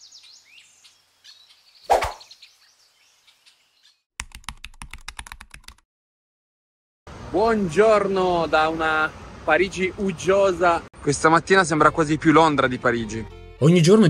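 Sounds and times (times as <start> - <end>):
birds chirping: 0.0 - 4.1.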